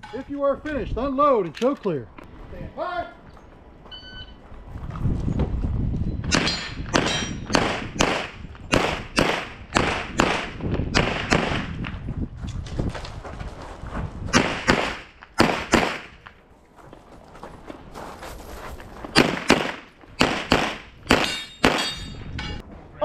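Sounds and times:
pistol shots: 6.3s - 11.8s, 14.4s - 16.2s, 19.2s - 22.0s.

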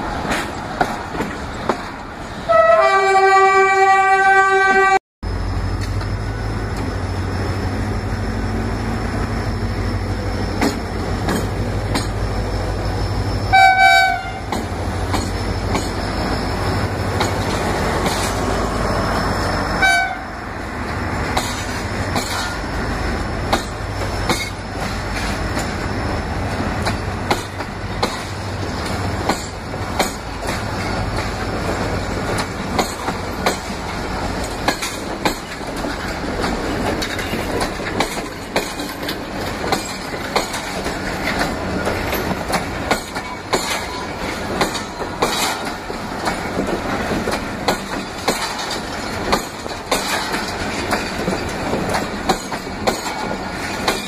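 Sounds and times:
train wheels clacking over rail joints: 0.0s - 2.1s, 8.8s - 13.0s, 14.0s - 19.4s, 20.8s - 54.0s
train rumble: 0.0s - 54.0s.

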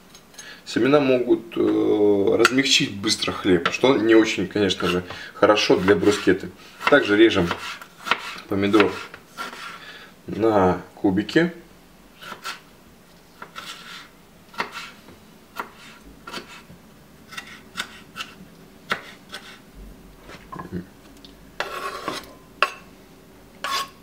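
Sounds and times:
knife scraping across board: 4.7s - 9.8s, 12.2s - 12.7s, 13.4s - 15.0s, 15.6s - 16.7s, 17.3s - 19.6s, 21.6s - 22.8s, 23.6s - 24.0s.

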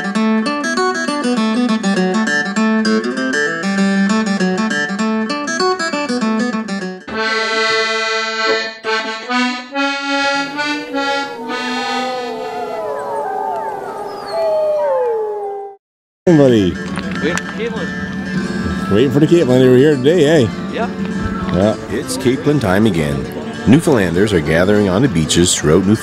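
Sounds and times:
held chords: 1.2s - 13.6s, 16.3s - 26.0s
fast accordion tune: 7.1s - 12.6s
wolf howl: 11.0s - 15.8s.

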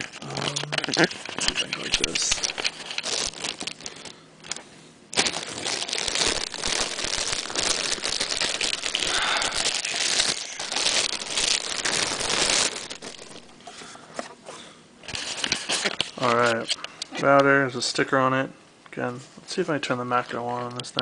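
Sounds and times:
plastic bag crinkling: 0.0s - 14.0s, 15.1s - 16.8s.

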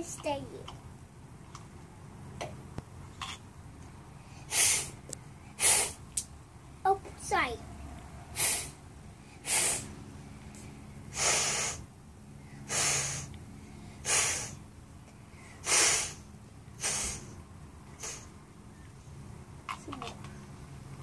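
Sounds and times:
child blowing short puffs: 4.3s - 6.2s, 8.3s - 8.8s, 9.4s - 10.0s, 11.1s - 11.9s, 12.5s - 14.6s, 15.3s - 18.4s.

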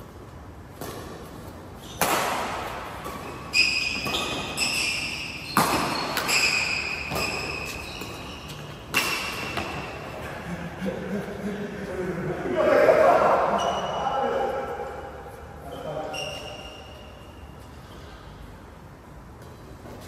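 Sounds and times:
rackets hitting shuttlecock: 0.7s - 10.1s
shoes squeaking on court floor: 0.7s - 10.3s, 13.5s - 18.1s.

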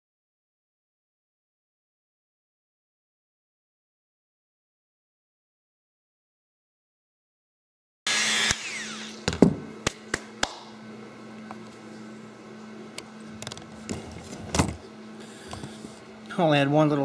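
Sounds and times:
rotary tool whining: 8.1s - 9.3s
steady low hum: 8.5s - 17.0s.

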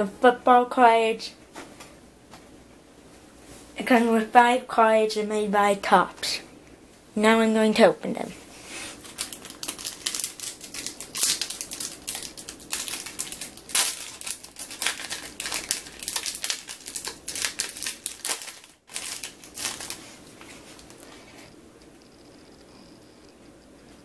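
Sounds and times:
foil wrapper crinkling: 8.9s - 21.2s.

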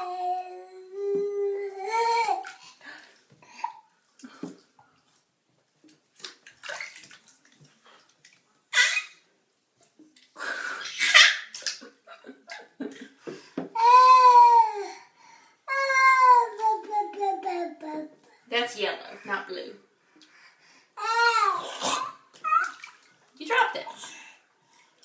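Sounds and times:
bath water splashing: 2.0s - 9.2s, 10.1s - 13.2s, 21.0s - 25.0s
baby squealing: 8.8s - 9.2s, 22.4s - 22.8s.

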